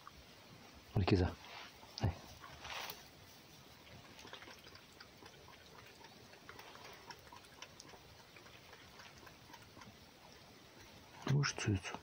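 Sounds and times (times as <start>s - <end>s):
fox lapping water: 3.8s - 11.3s.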